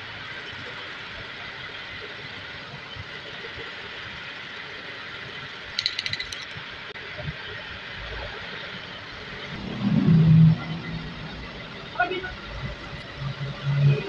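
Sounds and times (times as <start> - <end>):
rattling clicks: 5.8 - 6.6.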